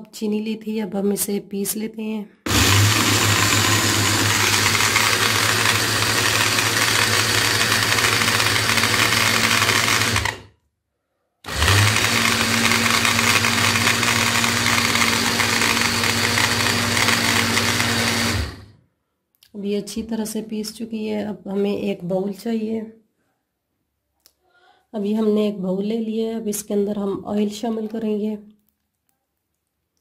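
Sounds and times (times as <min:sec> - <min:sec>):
electric grinder motor running: 0:02.5 - 0:10.5, 0:11.5 - 0:18.7.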